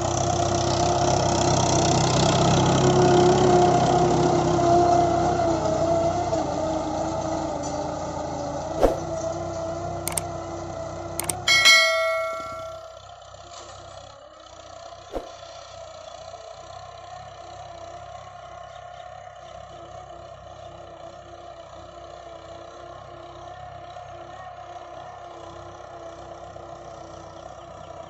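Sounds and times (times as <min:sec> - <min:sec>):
tractor diesel engine drone: 0:00.0 - 0:13.0
sharp click: 0:08.8 - 0:09.1, 0:11.2 - 0:13.0
bell-like ding: 0:11.2 - 0:13.0.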